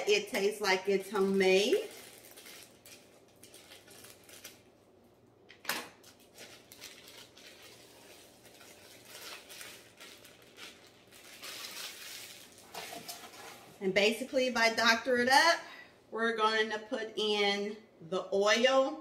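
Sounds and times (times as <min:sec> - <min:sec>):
plastic bag crinkling: 0:00.4 - 0:04.8, 0:06.0 - 0:13.8.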